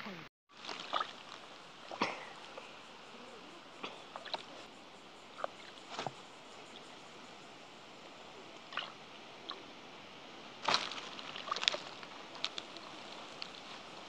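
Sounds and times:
water splashes: 0:00.0 - 0:14.0
hand squelching in wet mud: 0:00.6 - 0:02.6, 0:04.0 - 0:04.6, 0:10.6 - 0:14.0.

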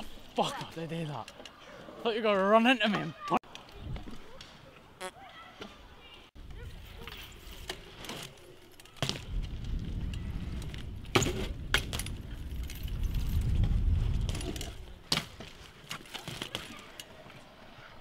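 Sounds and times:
metallic clacks and rattles from bike: 0:06.8 - 0:17.4
bike tyres rumbling on concrete: 0:08.9 - 0:17.0.

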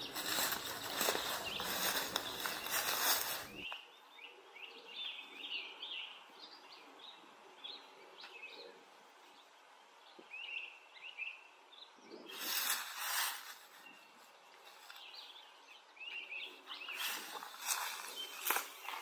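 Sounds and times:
rustling noise: 0:00.0 - 0:03.7, 0:12.3 - 0:15.3, 0:16.7 - 0:19.0
small birds chirping: 0:00.0 - 0:19.0.

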